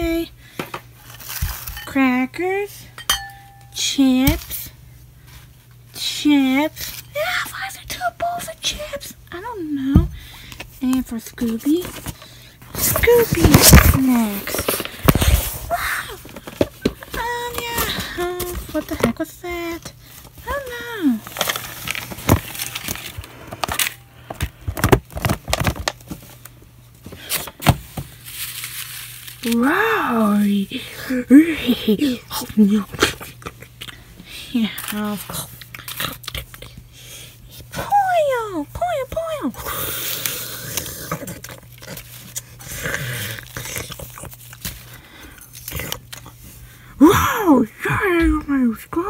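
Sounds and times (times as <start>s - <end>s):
steady low hum: 0.0s - 49.0s
paper rustling and clattering: 11.4s - 19.2s, 21.2s - 26.4s, 27.1s - 29.8s.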